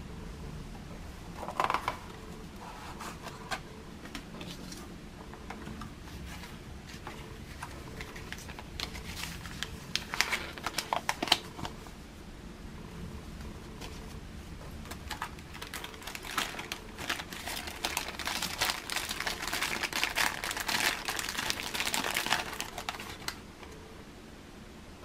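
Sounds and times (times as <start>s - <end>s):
paper rustling and snapping: 7.0s - 11.8s.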